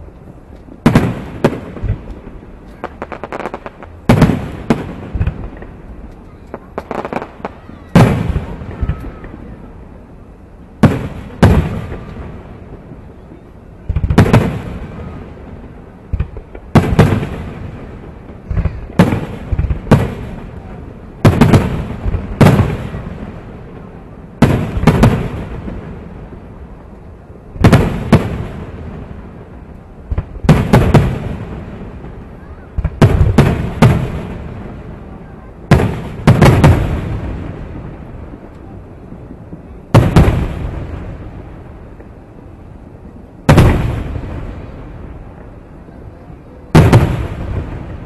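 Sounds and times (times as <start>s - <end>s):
fireworks bursting with booms: 0.0s - 48.0s.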